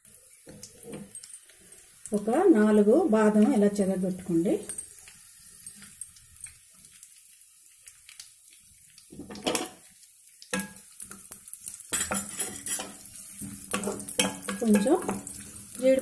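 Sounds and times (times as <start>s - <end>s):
nuts sizzling in ghee: 0.0s - 16.0s
spatula scraping pan: 11.9s - 16.0s.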